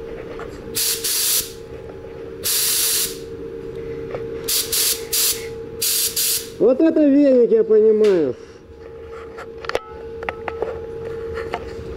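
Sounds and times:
faint hum: 0.0 - 11.9
spray gun hissing: 0.8 - 1.6, 2.4 - 3.3, 4.5 - 6.6.

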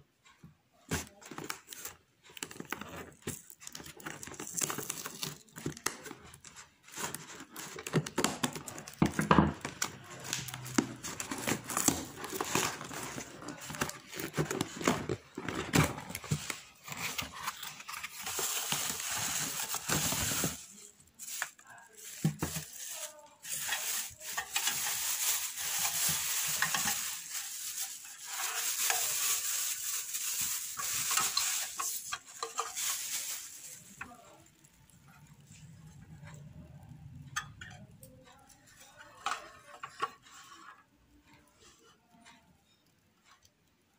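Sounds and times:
plastic wrap crinkling: 0.9 - 35.6
cardboard box rustling: 10.6 - 34.0.

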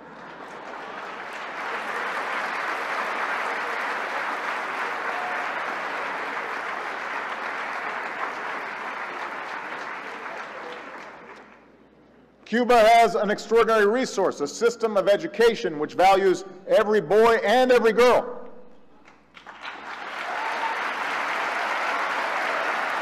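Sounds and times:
audience applauding: 0.0 - 11.7, 19.0 - 23.0.

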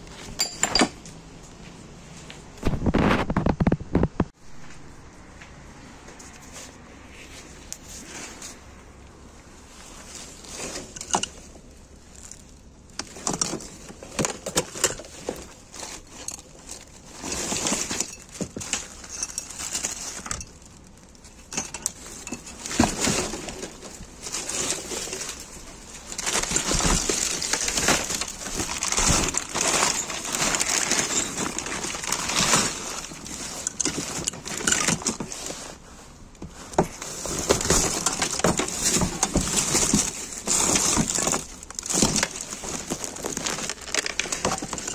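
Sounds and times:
objects knocking and clattering: 0.2 - 1.2, 10.6 - 11.6, 12.2 - 20.7, 21.4 - 35.4, 36.4 - 44.9
plastic bags crinkling: 9.8 - 44.9.

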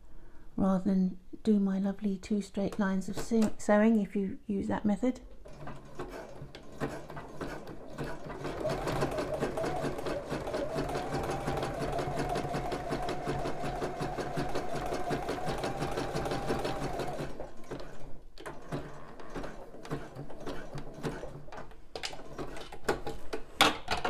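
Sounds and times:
sewing machine stitching: 5.4 - 23.2.

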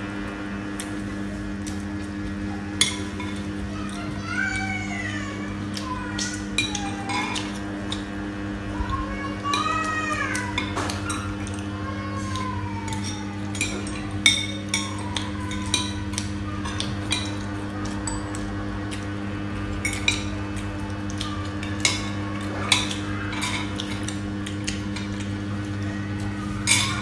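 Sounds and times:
steady low hum: 0.0 - 27.0
cutlery clinking on plates: 26.6 - 27.0.

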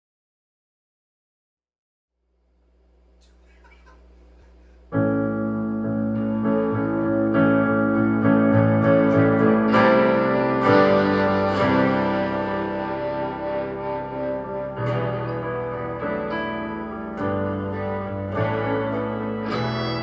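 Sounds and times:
sustained keyboard chords: 3.2 - 20.0
electric guitar through effects: 4.9 - 20.0.

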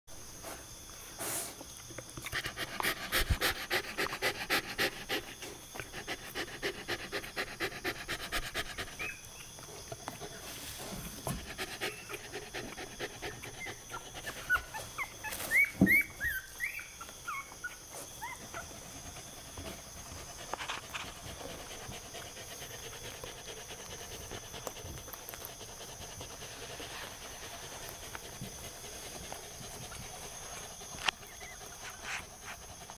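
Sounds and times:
puppy squeaking: 13.6 - 18.6.

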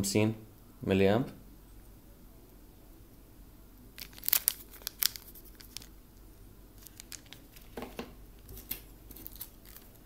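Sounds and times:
plastic packaging crinkling: 3.9 - 6.0, 6.7 - 10.0.

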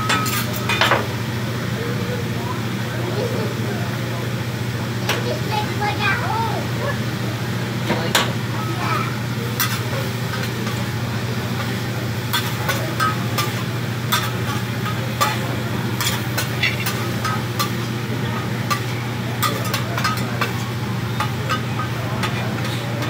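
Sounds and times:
food sizzling: 4.5 - 23.0
metal spatulas scraping griddle: 16.0 - 17.9.

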